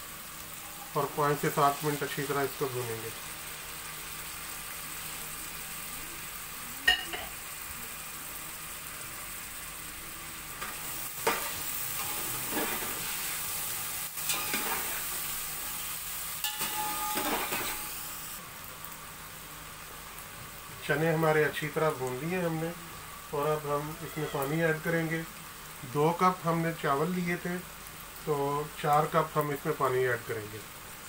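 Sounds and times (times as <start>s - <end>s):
chickpeas sizzling in oil: 0.0s - 31.0s
metal spatula scraping pot: 10.6s - 13.4s, 14.2s - 15.2s, 16.4s - 18.0s.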